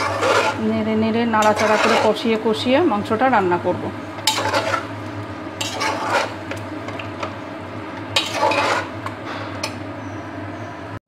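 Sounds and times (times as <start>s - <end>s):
metal ladle scraping a pot: 0.0s - 0.6s, 1.4s - 2.2s, 4.2s - 4.9s, 5.6s - 6.4s, 8.2s - 9.0s
steady low hum: 0.0s - 11.0s.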